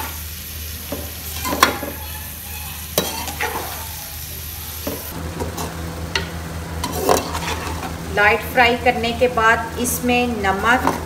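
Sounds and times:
onions sizzling in oil: 0.0s - 11.0s
metal spoon scraping pot: 3.0s - 3.8s, 6.8s - 7.9s.

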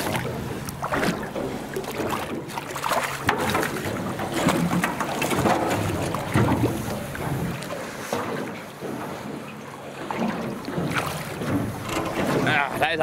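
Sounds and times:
fish thrashing at water surface: 0.0s - 9.0s
water splashing against boat hull: 0.0s - 13.0s
wind buffeting microphone: 3.2s - 9.4s.

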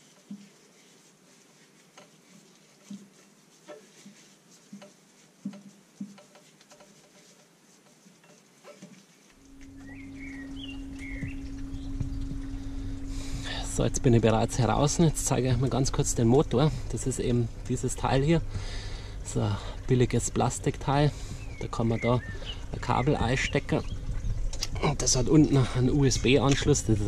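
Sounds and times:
hands patting raw chicken: 0.0s - 13.2s
steady hum: 9.3s - 27.0s
birds chirping: 9.4s - 27.0s.

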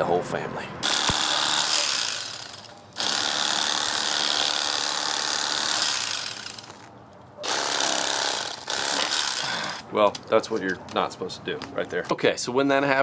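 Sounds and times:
electric knife running: 0.8s - 9.8s.

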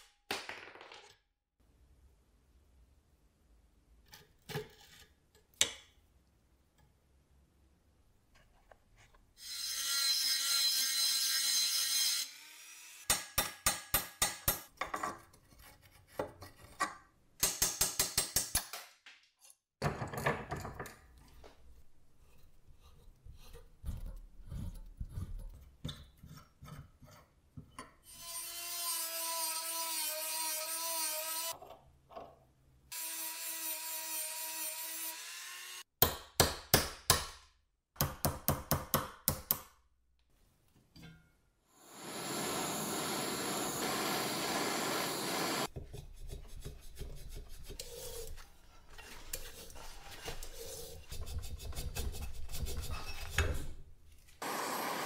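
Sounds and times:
high-speed rotary tool running: 41.8s - 45.7s, 54.4s - 55.0s.

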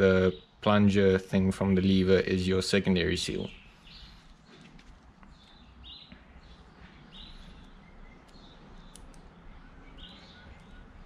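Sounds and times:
faint high chirps: 3.3s - 11.0s.

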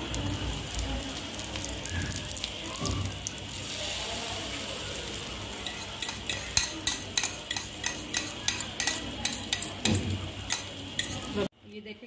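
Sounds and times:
egg sizzling: 0.0s - 11.5s
metal fork clicking on a pan: 5.6s - 11.3s.

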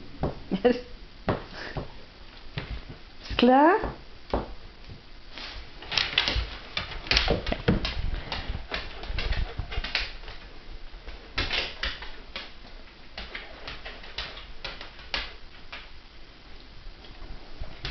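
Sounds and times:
dog claws clicking on wooden floor: 5.8s - 15.9s.

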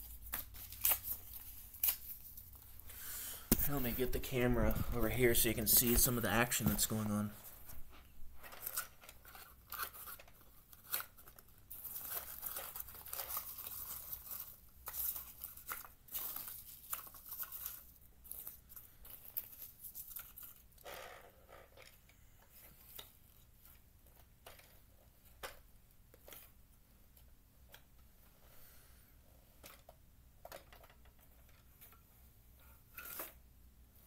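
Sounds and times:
cardboard crinkling: 8.4s - 20.7s.

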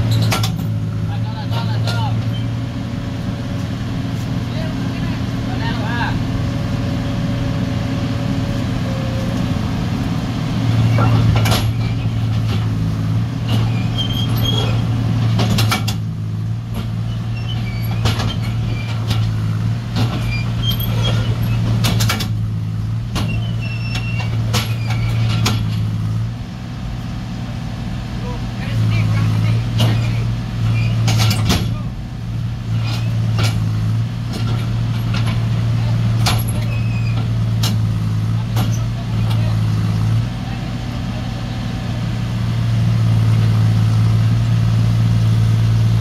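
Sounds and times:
diesel engine running hard: 0.0s - 46.0s
track chains squealing: 1.4s - 2.6s, 13.5s - 15.0s, 17.0s - 19.3s, 20.1s - 22.0s, 23.2s - 25.9s, 29.1s - 31.8s, 32.7s - 33.6s, 36.2s - 37.4s.

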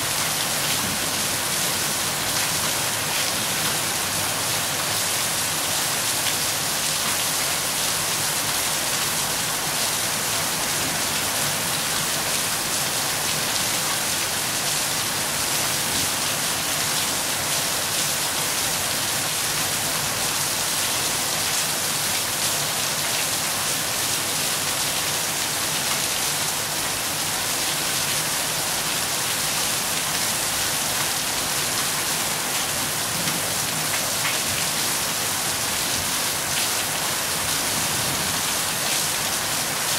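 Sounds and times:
steady rain hissing: 0.0s - 39.9s.

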